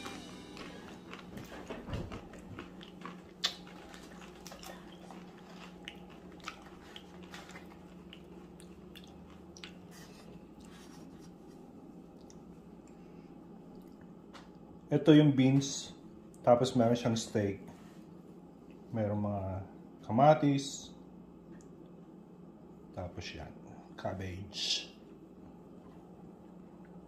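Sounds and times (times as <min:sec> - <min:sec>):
person chewing crunchy chips: 0:00.0 - 0:12.9
steady low hum: 0:00.0 - 0:27.0.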